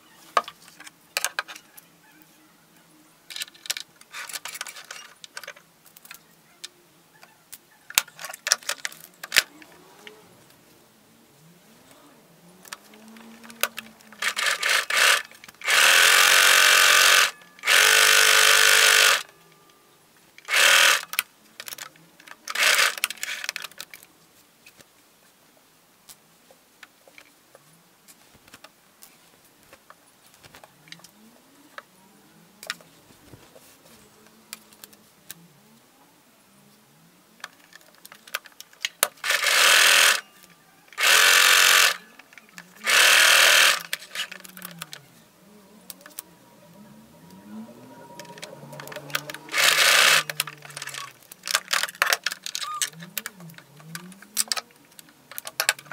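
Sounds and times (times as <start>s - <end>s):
sewing machine stitching: 13.2s - 19.3s, 20.5s - 21.1s, 22.5s - 23.5s, 39.2s - 40.2s, 41.0s - 42.1s, 42.8s - 44.4s, 48.2s - 51.7s.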